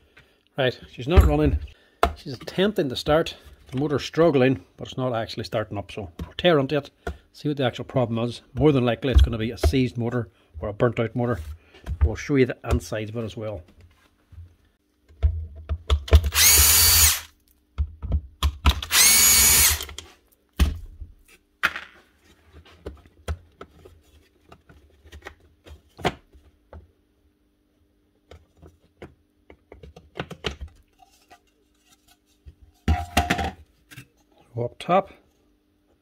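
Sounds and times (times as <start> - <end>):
cordless screwdriver spinning: 16.3 - 17.3, 18.9 - 20.0.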